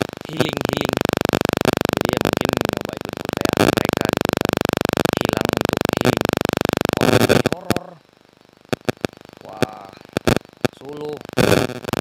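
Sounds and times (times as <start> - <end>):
harsh electronic buzz: 0.0 - 12.0
faint voice: 0.2 - 1.0, 2.0 - 4.2, 5.1 - 6.2, 7.0 - 8.1, 9.4 - 10.1.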